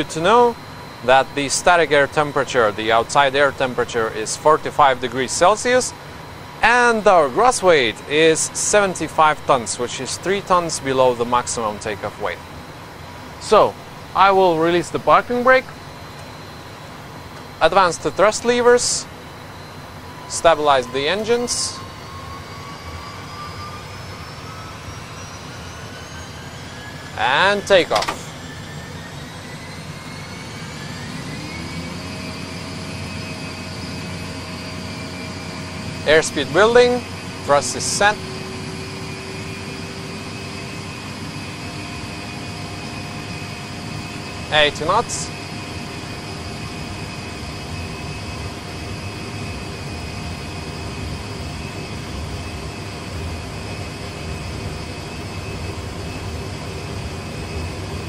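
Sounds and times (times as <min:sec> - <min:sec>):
jet engine at takeoff thrust: 0:00.0 - 0:58.0
thin high whine: 0:00.0 - 0:58.0.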